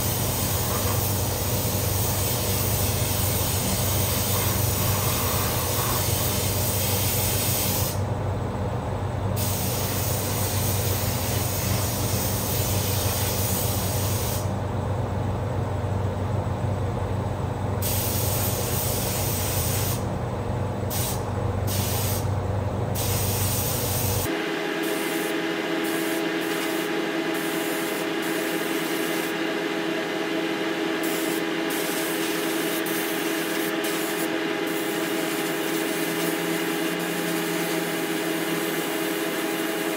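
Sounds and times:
spray gun hissing: 0:00.0 - 0:08.0, 0:09.4 - 0:14.5, 0:17.8 - 0:20.0, 0:20.9 - 0:22.2, 0:23.0 - 0:29.4, 0:31.0 - 0:39.9
ventilation fans rushing: 0:00.0 - 0:39.9
steady hum with pitched tones: 0:24.2 - 0:38.9.

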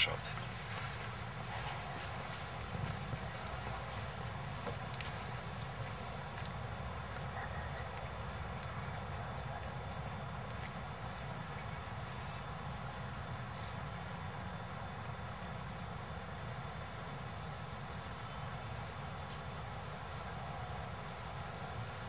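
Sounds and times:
low outdoor rumble: 0:00.0 - 0:14.5.

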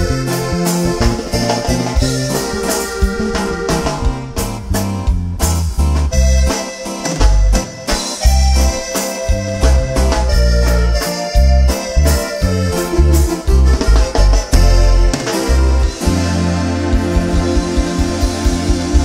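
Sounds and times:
congas and drums beat: 0:00.0 - 0:19.0
electric bass line: 0:00.0 - 0:19.0
keyboard melody: 0:00.0 - 0:19.0.

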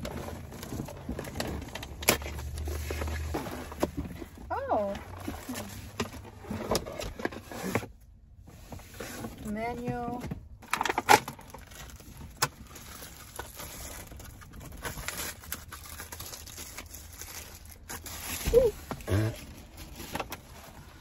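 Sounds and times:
plastic packaging crinkling: 0:10.7 - 0:21.0.

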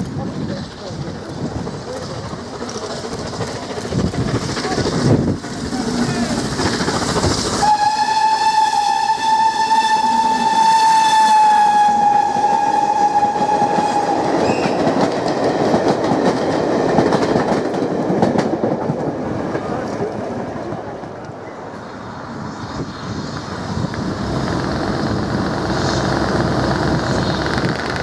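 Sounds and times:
wheels clicking over rail joints: 0:00.0 - 0:08.2
train rumbling past: 0:00.0 - 0:28.0
steam locomotive whistle: 0:07.6 - 0:14.9.

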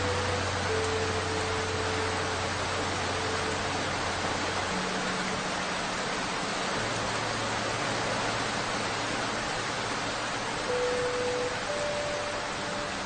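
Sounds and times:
heavy rain: 0:00.0 - 0:13.0
faint low held tones: 0:10.6 - 0:13.0.

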